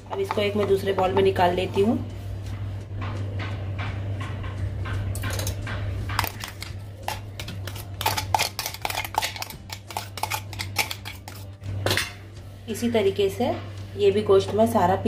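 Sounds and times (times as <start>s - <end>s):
steady low hum: 0.0s - 15.0s
spoon scraping steel bowl: 6.2s - 11.6s.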